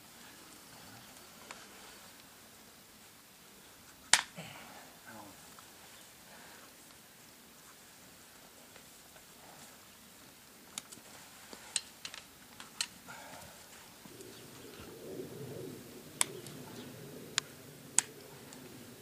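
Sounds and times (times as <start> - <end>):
hoof nippers snapping: 16.2 - 18.8.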